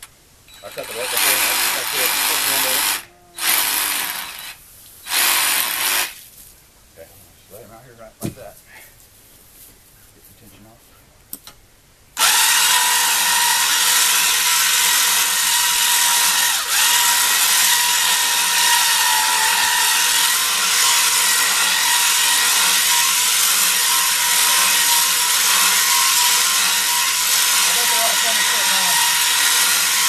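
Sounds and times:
pipe puller motor whining: 0:12.2 - 0:30.0.

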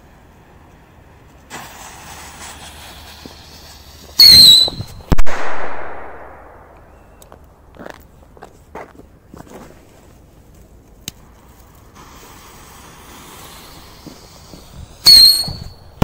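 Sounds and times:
firework rocket hiss: 0:00.0 - 0:06.3, 0:11.2 - 0:16.0
shrill rocket whistle: 0:01.6 - 0:05.2, 0:13.2 - 0:16.0.

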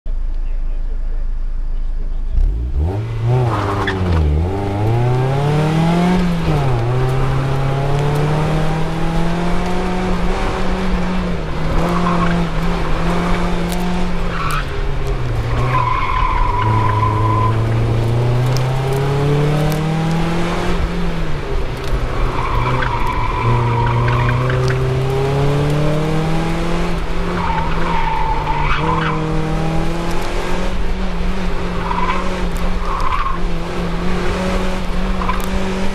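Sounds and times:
car engine accelerating: 0:00.1 - 0:35.9
tyres squealing: 0:15.4 - 0:18.0.

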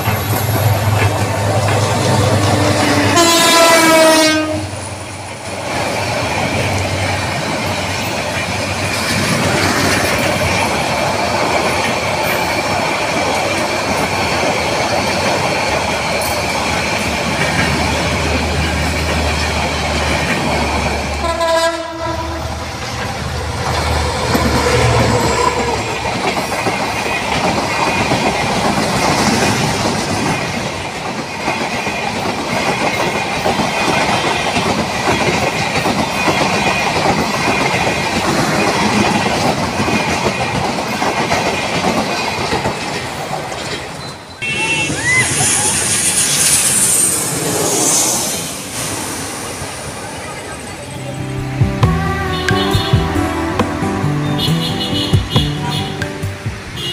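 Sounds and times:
train wheels clattering on rails: 0:00.0 - 0:21.8, 0:22.4 - 0:44.4
train horn: 0:02.1 - 0:04.8, 0:21.2 - 0:22.6, 0:44.4 - 0:45.1, 0:52.0 - 0:56.9.

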